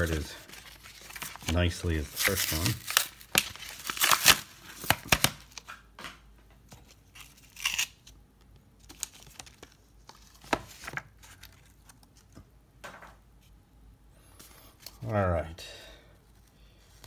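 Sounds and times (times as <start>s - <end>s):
plastic pack crinkling and ripping: 0.0s - 5.8s, 6.8s - 8.2s, 8.8s - 12.1s.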